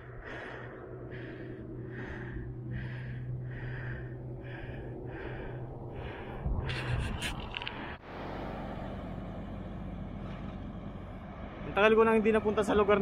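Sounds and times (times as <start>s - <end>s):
heavy rhythmic breathing: 0.0s - 8.0s
steady low hum: 0.0s - 11.7s.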